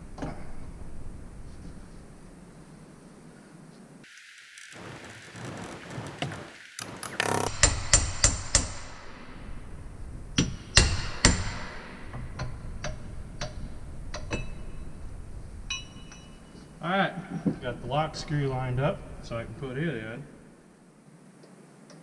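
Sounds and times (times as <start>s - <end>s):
hammer striking metal wrench: 7.5s - 9.4s, 10.4s - 14.8s, 15.7s - 16.4s.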